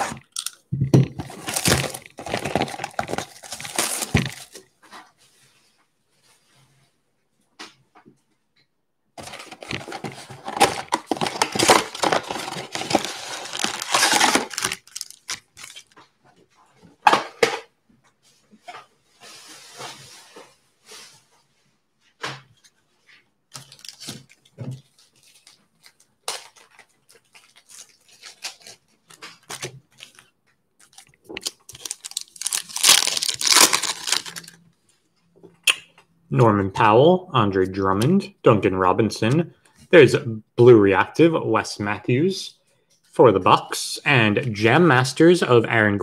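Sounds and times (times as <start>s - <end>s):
cardboard ripping and rustling: 1.2s - 4.6s, 9.2s - 16.0s, 30.9s - 34.6s
foil pack tearing and crinkling: 1.2s - 4.6s, 9.2s - 16.0s, 25.2s - 30.2s, 30.8s - 34.6s
packs tapping down: 9.2s - 15.8s.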